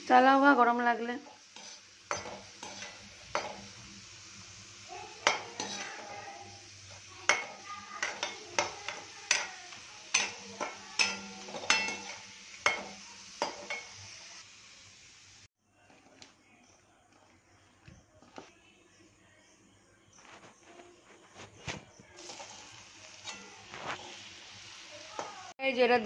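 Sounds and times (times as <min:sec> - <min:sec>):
potatoes sizzling in hot oil: 0:00.0 - 0:15.5, 0:22.2 - 0:26.0
spoon knocking and scraping pan: 0:01.2 - 0:03.8, 0:05.2 - 0:14.1, 0:21.7 - 0:24.3.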